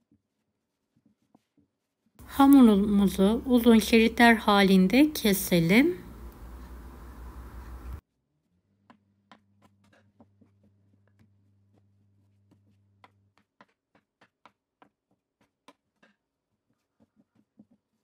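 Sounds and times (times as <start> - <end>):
low steady hum: 2.2 - 8.0
knife and hands tapping dough: 8.8 - 18.0.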